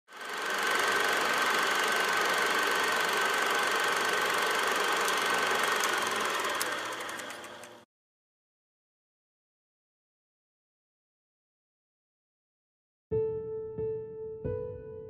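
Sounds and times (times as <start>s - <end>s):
whirring noise with high tone: 0.1s - 7.9s
sharp clicks: 5.0s - 7.8s.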